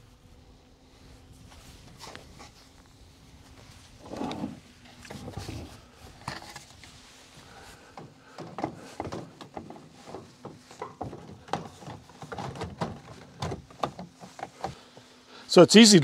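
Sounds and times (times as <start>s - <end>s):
plastic gutter knocks and clicks: 8.0s - 14.8s.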